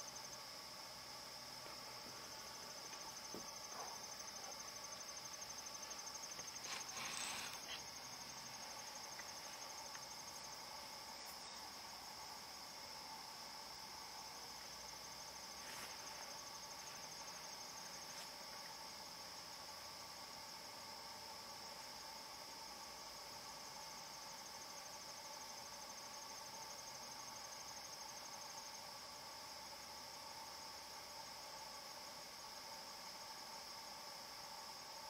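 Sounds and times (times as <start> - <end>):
crickets chirping: 0.0 - 35.0
noisy rustle: 5.9 - 7.9.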